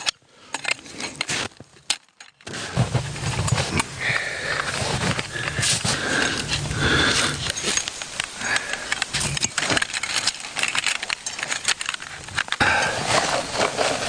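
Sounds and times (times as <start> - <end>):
metal tent poles clicking: 0.0 - 2.6, 5.1 - 14.0
metal poles scraping and squeaking: 4.7 - 14.0.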